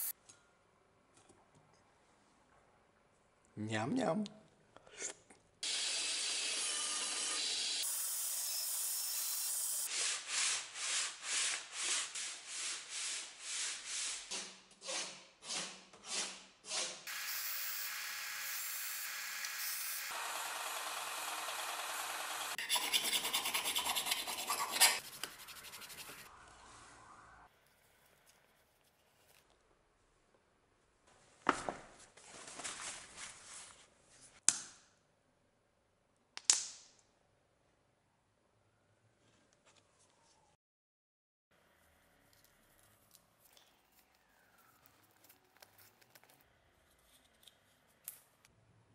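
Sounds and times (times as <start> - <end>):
band saw cutting wood: 5.6 - 9.9, 17.1 - 26.3
disc sander running: 19.1 - 22.6
rustling: 31.8 - 34.4.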